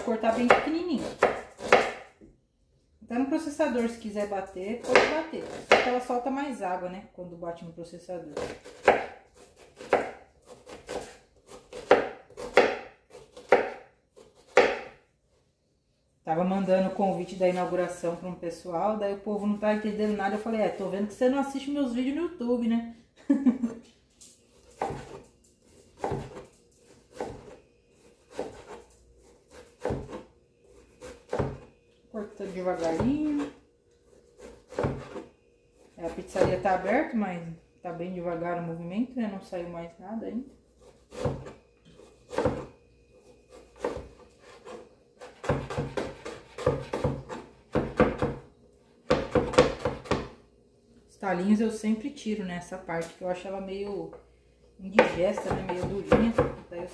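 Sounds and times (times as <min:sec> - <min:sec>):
knife chopping on plastic board: 0:00.3 - 0:02.1, 0:04.8 - 0:06.0, 0:08.4 - 0:15.0, 0:34.4 - 0:35.3, 0:40.9 - 0:42.7, 0:43.5 - 0:48.4, 0:49.1 - 0:50.4, 0:55.0 - 0:56.6.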